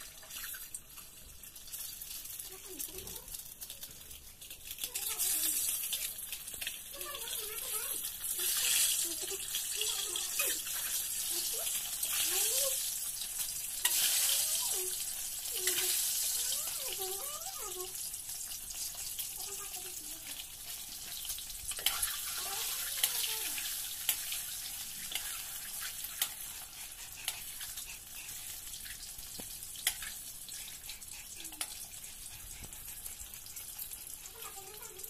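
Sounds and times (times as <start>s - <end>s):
eggs sizzling in hot oil: 0.0s - 35.0s
spatula clicking in pan: 3.3s - 6.9s, 24.0s - 26.6s, 29.3s - 30.2s.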